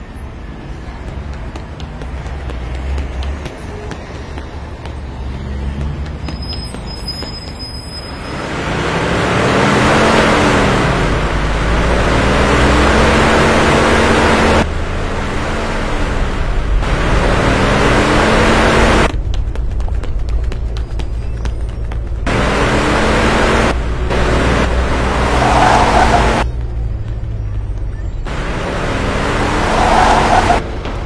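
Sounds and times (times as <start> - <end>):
road noise: 0.0 - 31.0
car engine revving: 8.3 - 19.1, 22.3 - 30.7.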